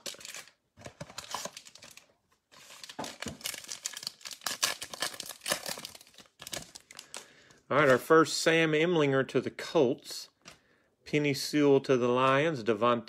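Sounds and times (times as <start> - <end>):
wrapper crackling: 0.0 - 7.9.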